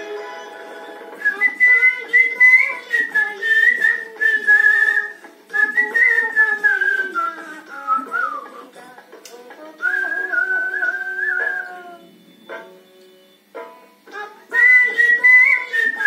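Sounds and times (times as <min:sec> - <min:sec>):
man whistling a melody: 0:01.2 - 0:08.6, 0:09.8 - 0:13.4, 0:14.5 - 0:16.0.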